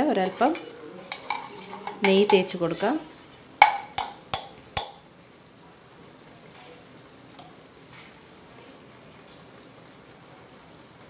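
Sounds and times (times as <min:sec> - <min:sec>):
faint sizzle in pan: 0:00.0 - 0:11.0
metal spoon clinking on steel box: 0:00.2 - 0:05.0.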